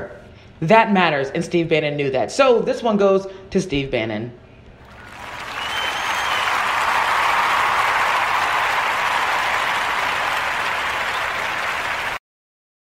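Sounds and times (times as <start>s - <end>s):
applause: 4.8s - 12.2s.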